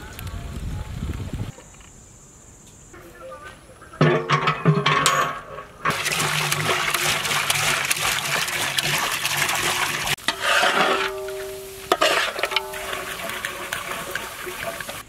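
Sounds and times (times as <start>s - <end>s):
water pouring into a pot: 5.9s - 15.0s.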